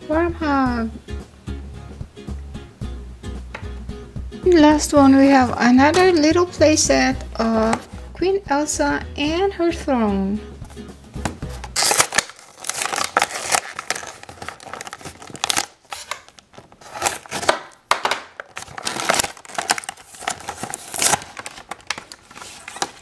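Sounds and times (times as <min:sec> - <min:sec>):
plastic packaging crinkling: 0:11.6 - 0:23.0.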